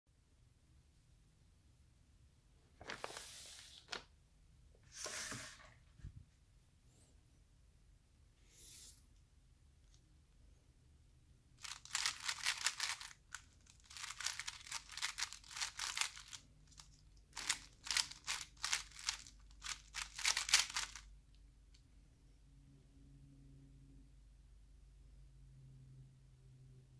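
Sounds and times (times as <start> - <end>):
puzzle cube clicking turns: 11.6 - 21.1.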